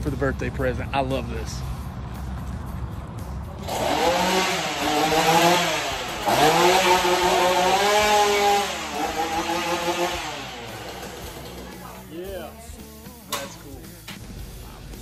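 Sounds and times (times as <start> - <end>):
chainsaw revving: 3.6 - 12.6.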